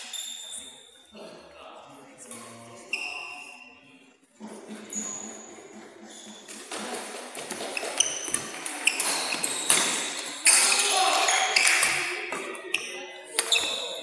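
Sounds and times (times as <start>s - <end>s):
echoing voices: 0.0s - 14.0s
shoes squeaking on court floor: 2.9s - 3.7s, 4.8s - 14.0s
rackets striking shuttlecock: 6.4s - 13.9s.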